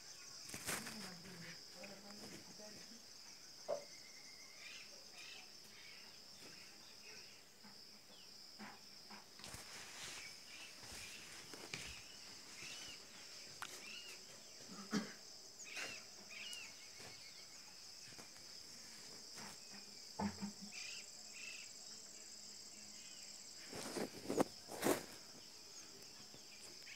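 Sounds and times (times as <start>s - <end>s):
knocks and rustles: 19.0s - 20.7s.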